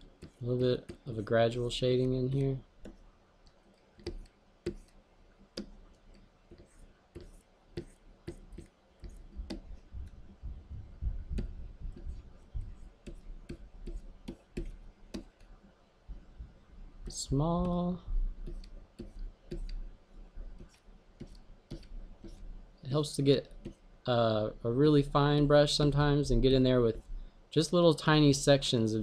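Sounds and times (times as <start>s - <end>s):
pen clicks and taps on display: 4.0s - 5.0s, 5.6s - 9.9s, 13.0s - 15.5s, 18.4s - 19.8s, 20.6s - 22.4s
faint low rumble: 9.3s - 13.8s, 16.0s - 18.7s.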